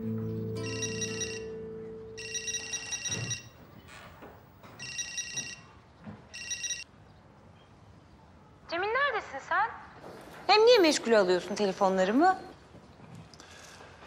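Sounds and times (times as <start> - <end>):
background music: 0.0 - 3.1
phone ringtone high beeps: 0.0 - 3.6, 4.8 - 5.6, 6.4 - 6.8.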